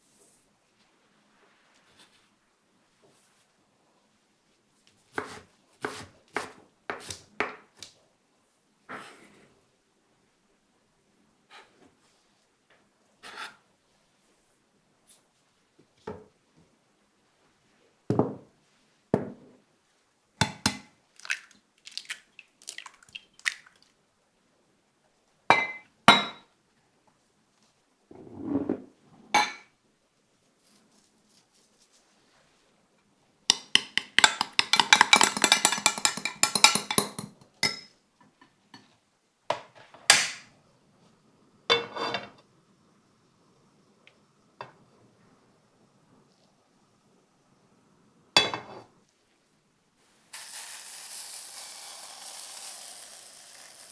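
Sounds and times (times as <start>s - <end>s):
glass bowls clinking: 25.5s - 26.4s
rapid clinking of stirring: 33.8s - 37.4s.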